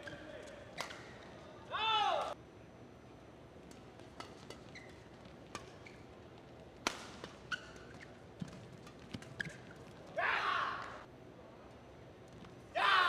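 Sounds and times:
court shoes squeaking: 0.0s - 1.6s, 3.6s - 10.2s.

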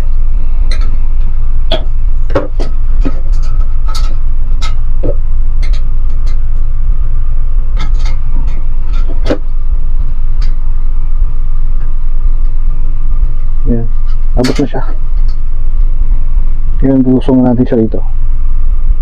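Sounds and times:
faint steady whine: 0.0s - 19.0s
loud low rumble: 0.0s - 19.0s.

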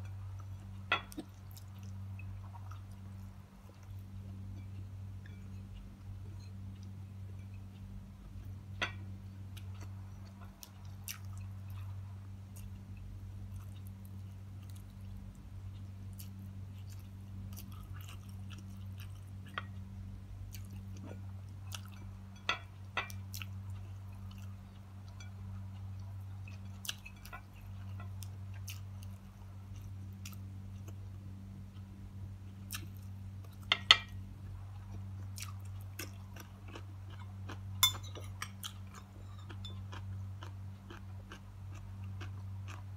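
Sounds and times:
steady low hum: 0.0s - 42.9s
person chewing: 0.3s - 5.4s, 13.5s - 15.0s, 16.1s - 19.8s, 23.0s - 31.0s, 32.5s - 42.9s.

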